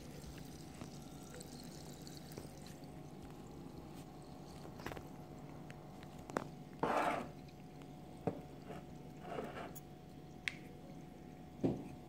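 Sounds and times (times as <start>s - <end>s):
granules fizzing in water: 0.0s - 5.3s.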